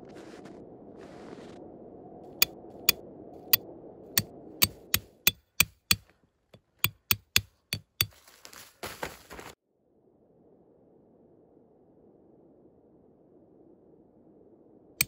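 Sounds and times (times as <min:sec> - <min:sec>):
hatchet hammering tent stake: 0:04.6 - 0:06.0, 0:06.8 - 0:08.1.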